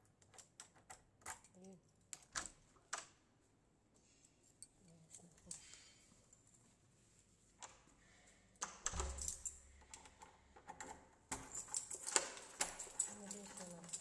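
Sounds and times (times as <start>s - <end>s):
door lock clicking and rattling: 8.6s - 14.0s
keys jangling: 8.8s - 10.0s, 10.8s - 14.0s.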